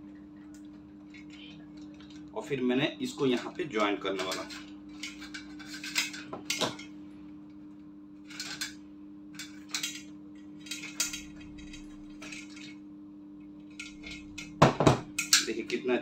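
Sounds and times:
low hum: 3.4s - 15.6s.

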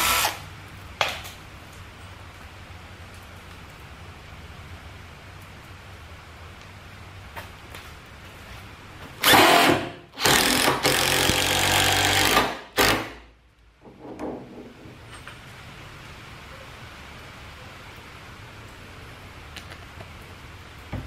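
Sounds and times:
cordless drill driving screw: 0.0s - 0.4s, 9.2s - 13.1s.

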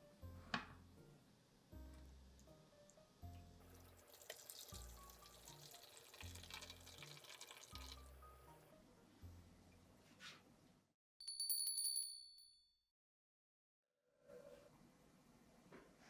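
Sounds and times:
soft background music: 0.0s - 10.9s
water pouring into metal tray: 3.7s - 8.1s.

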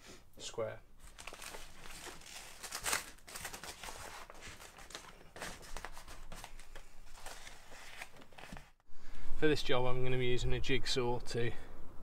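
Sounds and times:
plastic sheeting rustling: 1.0s - 8.1s.

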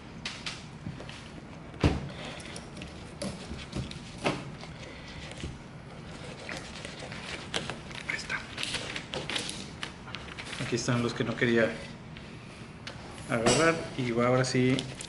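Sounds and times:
paper rustling: 2.9s - 11.4s
knife scraping fish: 6.0s - 7.6s.

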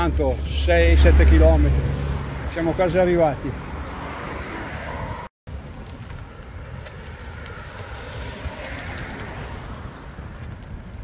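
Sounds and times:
bicycle tyre noise: 0.0s - 11.0s
wind buffeting microphone: 3.2s - 11.0s.

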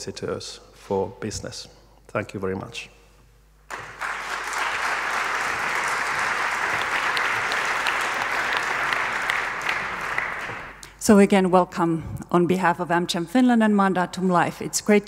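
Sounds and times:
audience applauding: 3.7s - 10.8s.

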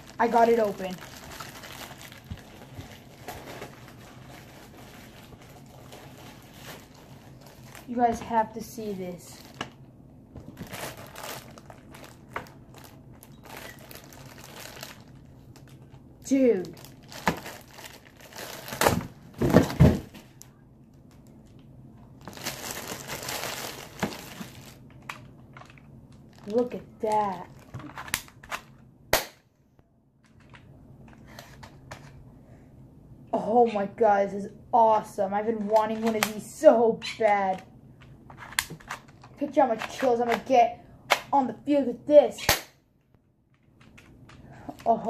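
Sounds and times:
packaging crinkling: 0.0s - 8.0s, 10.4s - 21.6s, 22.2s - 28.8s
low room hum: 0.0s - 45.0s
package rustling and knocks: 18.6s - 20.3s.

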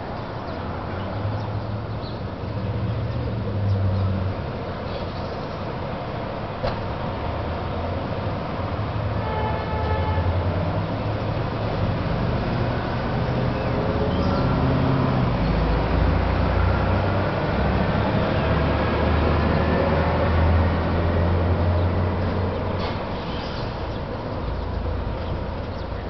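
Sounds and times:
city traffic: 0.0s - 26.0s
heavy vehicle rumbling past: 6.4s - 26.0s.

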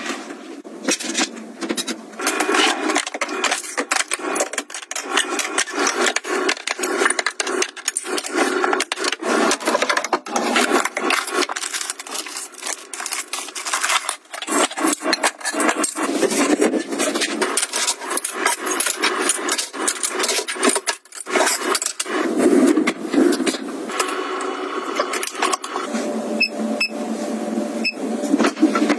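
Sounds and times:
jars and dividers clattering in drawer: 0.8s - 22.0s.

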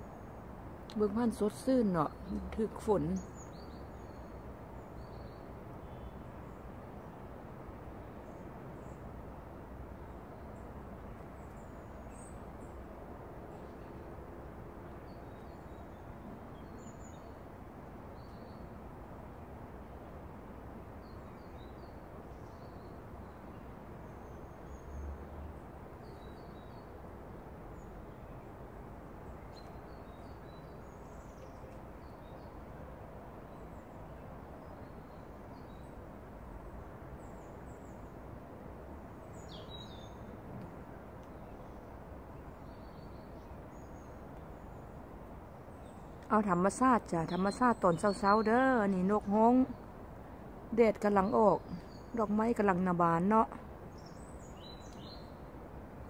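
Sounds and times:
small birds chirping: 0.0s - 7.2s, 29.2s - 32.6s, 39.2s - 56.0s
outdoor ambience hiss: 0.0s - 56.0s.

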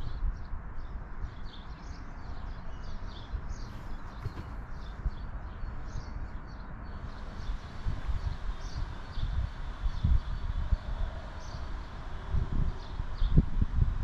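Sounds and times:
small birds chirping: 0.0s - 14.0s
wind on microphone: 3.2s - 14.0s.

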